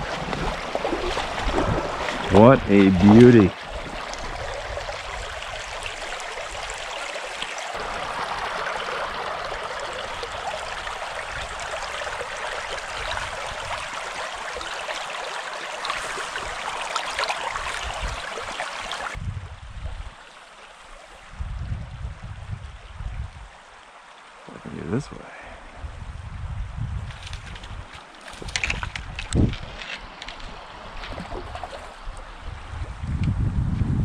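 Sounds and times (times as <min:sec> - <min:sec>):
stream babbling over rocks: 0:00.0 - 0:19.2.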